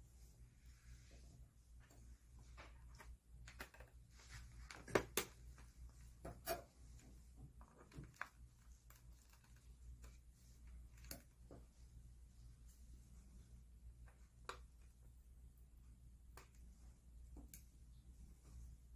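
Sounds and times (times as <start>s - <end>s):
low steady hum: 0.0s - 18.9s.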